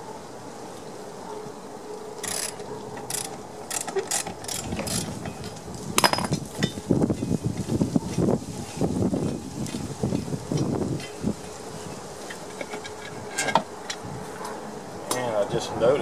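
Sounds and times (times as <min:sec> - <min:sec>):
ratchet wrench clicking: 0:02.2 - 0:05.1.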